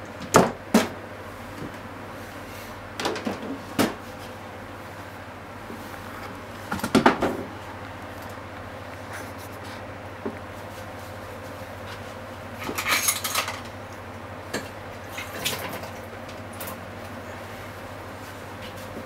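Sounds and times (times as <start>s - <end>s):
steady low hum: 0.0s - 19.0s
dishes and utensils clattering: 12.6s - 13.8s.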